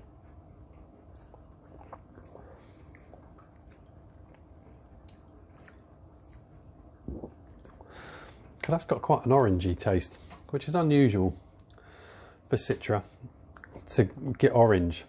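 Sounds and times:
lip smacks: 1.1 - 7.9, 13.5 - 13.9.

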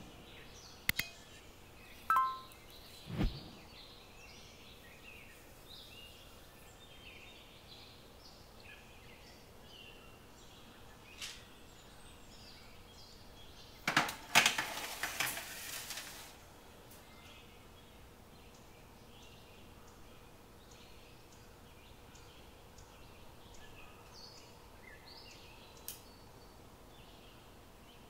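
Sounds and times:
small click: 0.9 - 1.2, 25.8 - 26.1
soft high chirps: 2.0 - 2.7
metal baking tray clanking: 13.9 - 16.3.

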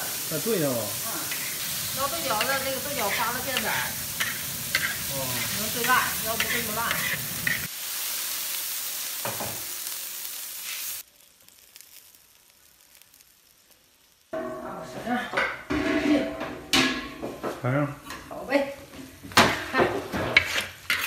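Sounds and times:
beans sizzling in a wok: 0.0 - 21.0
metal spatula scraping wok: 1.0 - 7.7, 14.4 - 21.0.

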